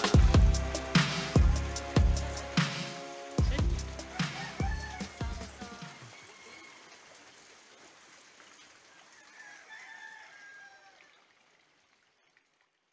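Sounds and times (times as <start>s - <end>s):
hiss of flowing water: 0.0s - 11.7s
rooster crowing faintly: 4.0s - 7.2s, 8.9s - 11.3s.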